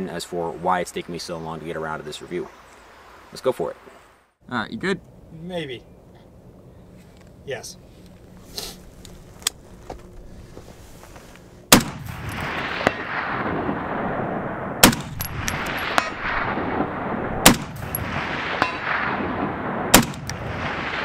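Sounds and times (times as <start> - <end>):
rifle shots with echo: 11.7 - 21.0.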